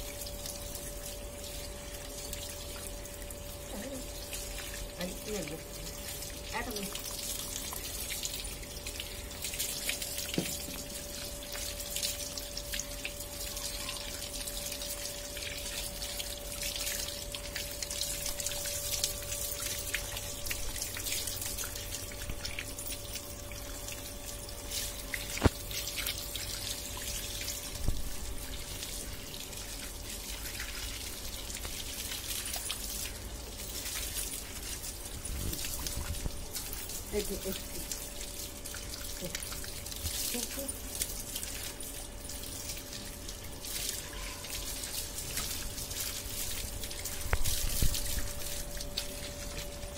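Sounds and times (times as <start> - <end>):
tap water splashing: 6.7 - 11.3, 24.8 - 29.0, 29.8 - 32.9, 37.6 - 49.7.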